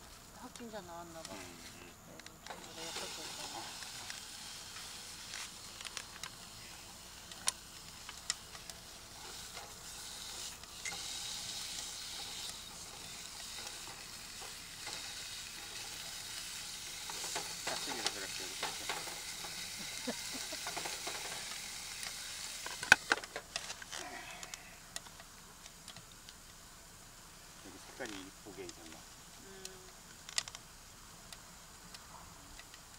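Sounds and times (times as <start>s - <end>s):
food sizzling in a pan: 1.2s - 23.2s.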